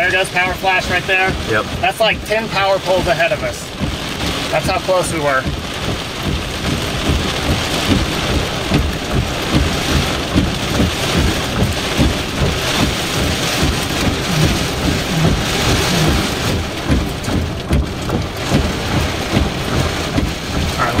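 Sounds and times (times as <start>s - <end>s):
heavy rain on car roof: 0.0s - 21.0s
low rumble: 5.4s - 21.0s.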